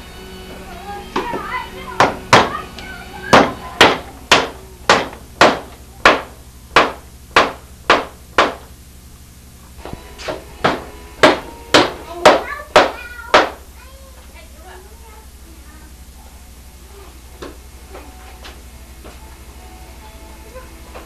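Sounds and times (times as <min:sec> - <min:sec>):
hammer blows: 0:09.8 - 0:13.6.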